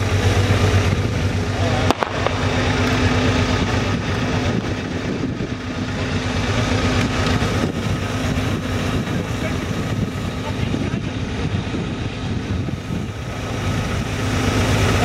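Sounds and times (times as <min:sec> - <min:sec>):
petrol engine idling: 0:00.0 - 0:15.0
sharp crack: 0:01.7 - 0:03.8.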